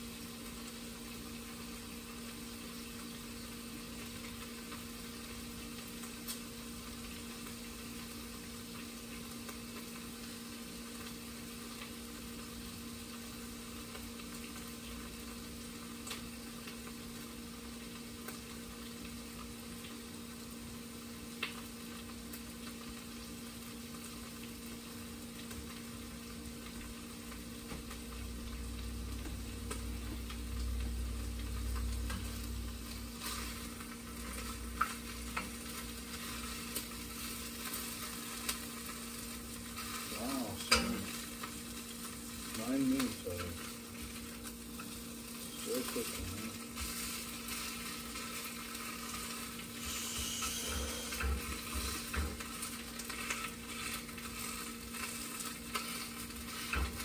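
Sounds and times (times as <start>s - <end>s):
food sizzling in frying pan: 0.0s - 57.0s
utensil scraping pan: 49.1s - 57.0s.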